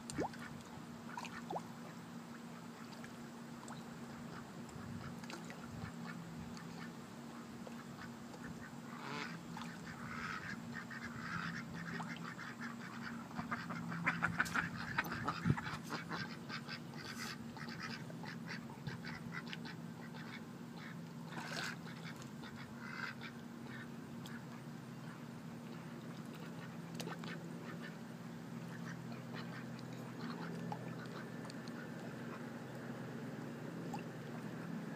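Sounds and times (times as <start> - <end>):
low hum: 0.0 - 34.9
ducks quacking: 4.3 - 25.2, 26.3 - 32.5.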